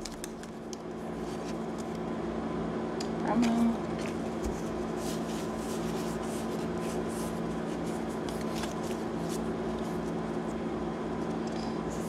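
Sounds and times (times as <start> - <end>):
steady low hum: 0.0 - 12.0
trading cards sliding and rubbing: 4.6 - 10.2.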